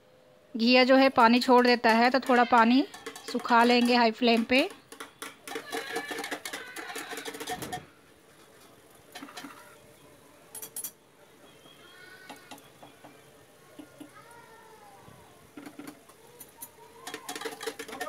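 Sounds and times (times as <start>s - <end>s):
metal spatula scraping a pot: 1.8s - 9.8s, 17.0s - 18.0s.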